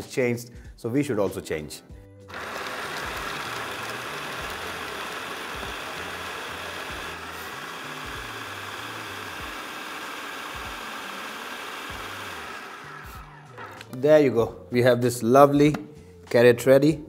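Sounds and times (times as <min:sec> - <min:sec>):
food processor chopping carrots: 0:02.3 - 0:14.0.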